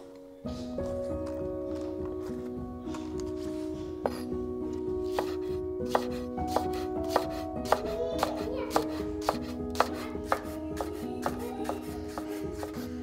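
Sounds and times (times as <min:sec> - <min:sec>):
knife slicing on wooden board: 0:05.1 - 0:07.8.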